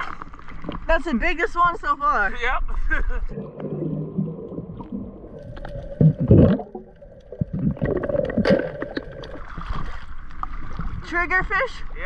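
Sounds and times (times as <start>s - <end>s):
underwater gurgling and rumbling: 2.8s - 12.0s.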